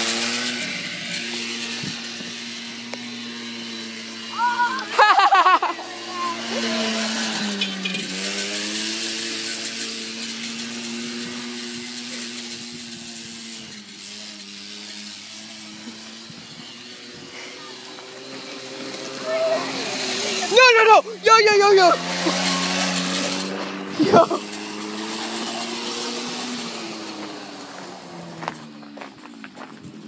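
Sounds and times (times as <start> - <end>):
small motor humming: 0.0 - 30.0.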